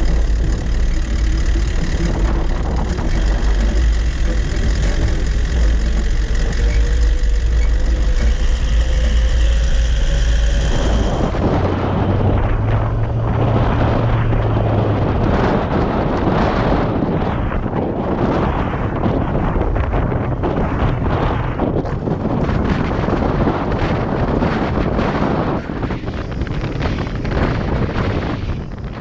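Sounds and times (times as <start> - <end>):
vehicle engine and road noise: 0.0 - 29.0
wind on microphone: 0.0 - 29.0.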